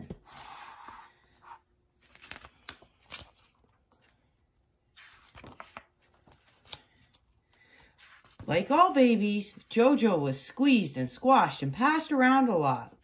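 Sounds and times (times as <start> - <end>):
book pages turning: 0.0 - 9.8.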